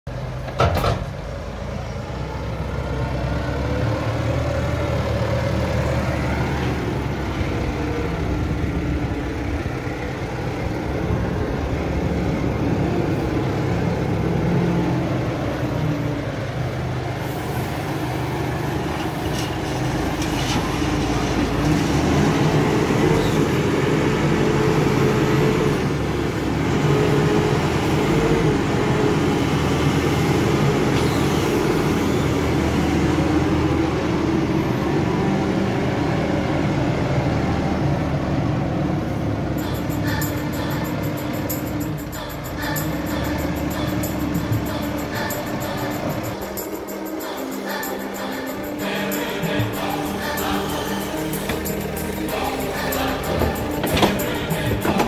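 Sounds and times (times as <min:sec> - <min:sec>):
tractor diesel engine running: 0:00.1 - 0:55.0.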